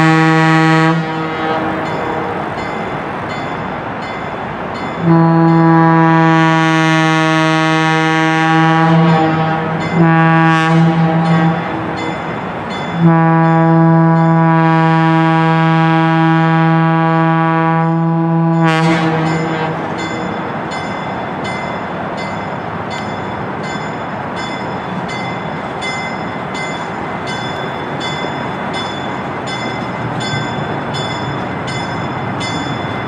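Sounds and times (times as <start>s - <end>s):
locomotive air horn blasts: 0.0s - 2.6s, 5.0s - 12.1s, 12.9s - 20.0s.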